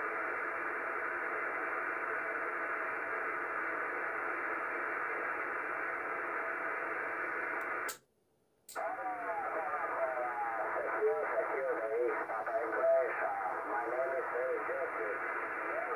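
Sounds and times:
radio static hiss: 0.0 - 7.9, 8.7 - 15.9
radio click: 8.7 - 9.0
faint distant voice over radio: 8.8 - 15.9.

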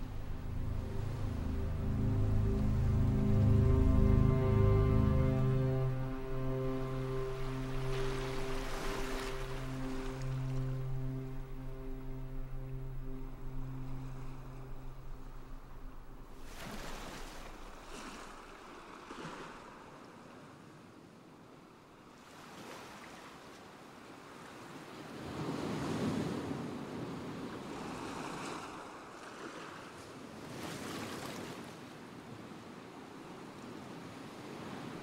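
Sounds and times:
river water flowing: 0.0 - 20.6
wind: 0.0 - 35.0.

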